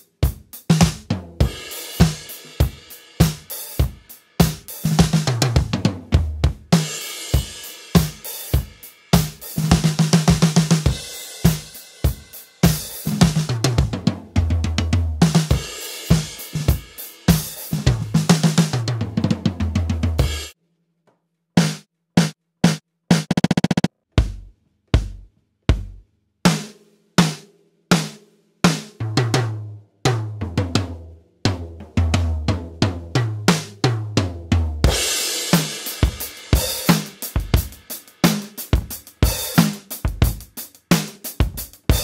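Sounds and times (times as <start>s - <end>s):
drum kit groove: 0.0s - 20.6s, 21.6s - 42.0s
drum roll: 0.0s - 20.6s, 21.6s - 42.0s.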